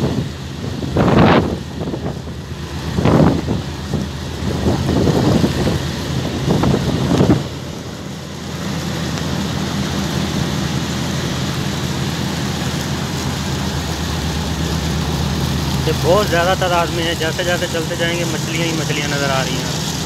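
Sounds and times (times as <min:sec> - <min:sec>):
wind on microphone: 0:00.0 - 0:08.1
low mechanical hum: 0:00.0 - 0:20.0
steady hiss: 0:00.0 - 0:20.0.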